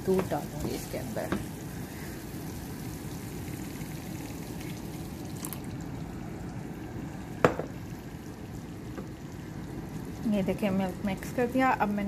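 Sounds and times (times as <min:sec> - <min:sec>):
sauce simmering: 0:00.0 - 0:12.0
milk pouring into a pan: 0:01.7 - 0:10.3.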